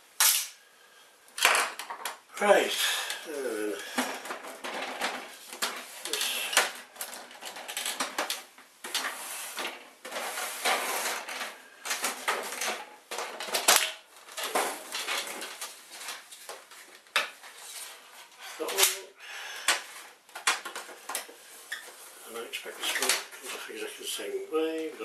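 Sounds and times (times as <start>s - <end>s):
plastic scraping on worktop: 3.9s - 13.7s.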